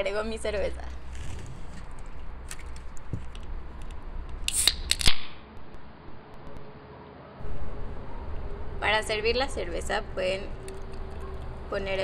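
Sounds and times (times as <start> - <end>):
can tab cracking open: 2.5 - 5.3
can clicking out of pack: 4.5 - 5.3.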